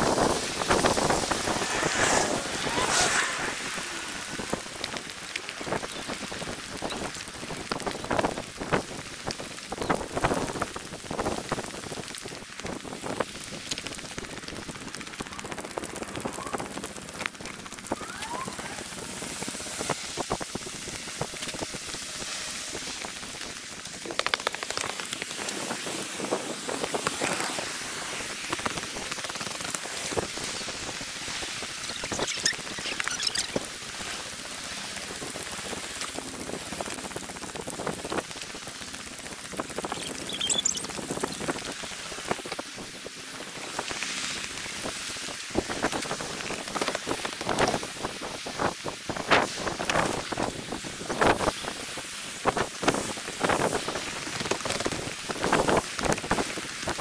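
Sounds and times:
dense crackle of clicks and hiss: 0:00.0 - 0:57.0
short high chirps: 0:39.9 - 0:40.9.

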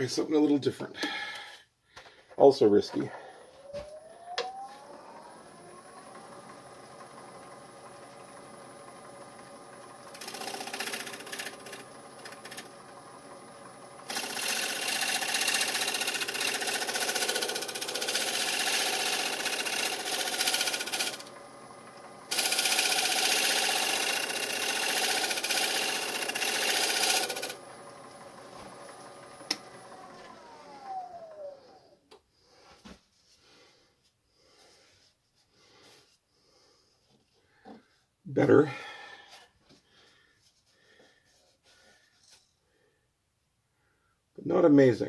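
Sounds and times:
wood lathe humming: 0:03.2 - 0:32.1
gouge cutting wooden bowl: 0:10.1 - 0:12.7, 0:14.1 - 0:21.3, 0:22.3 - 0:27.6.

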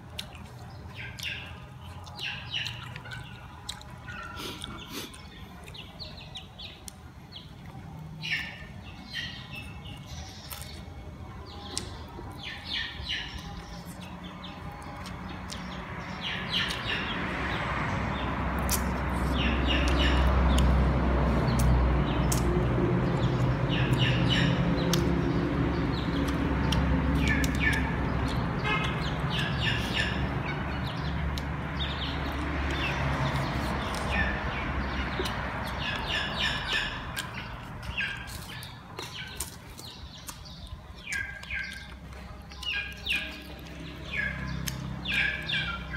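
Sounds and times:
small birds chirping: 0:00.0 - 0:45.9
chewing and lip-smacking clicks: 0:00.1 - 0:05.9, 0:14.8 - 0:15.8, 0:18.6 - 0:19.0, 0:19.7 - 0:20.8, 0:21.4 - 0:22.7, 0:23.4 - 0:25.2, 0:26.1 - 0:29.2, 0:31.0 - 0:34.3, 0:36.7 - 0:45.5.

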